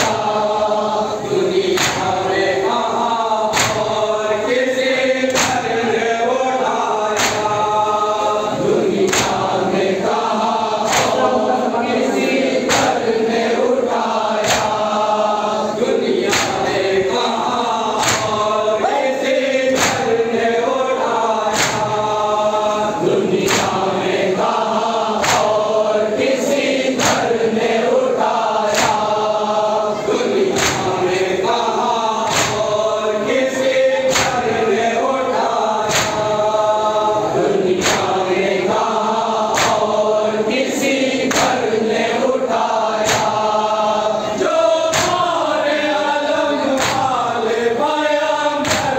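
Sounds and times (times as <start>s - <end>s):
crowd of men chanting: 0.0s - 48.9s
hands slapping chests: 1.7s - 2.4s, 3.5s - 4.0s, 5.3s - 5.9s, 7.1s - 7.8s, 8.9s - 9.6s, 10.8s - 11.4s, 12.7s - 13.0s, 14.4s - 14.9s, 16.2s - 16.8s, 18.0s - 18.5s, 19.7s - 20.2s, 21.5s - 22.0s, 23.4s - 23.8s, 25.2s - 25.7s, 26.9s - 27.3s, 28.6s - 29.2s, 30.5s - 31.0s, 32.2s - 32.8s, 34.1s - 34.5s, 35.8s - 36.4s, 37.7s - 38.2s, 39.4s - 40.0s, 41.2s - 41.7s, 43.0s - 43.6s, 44.9s - 45.4s, 46.7s - 47.2s, 48.6s - 48.9s.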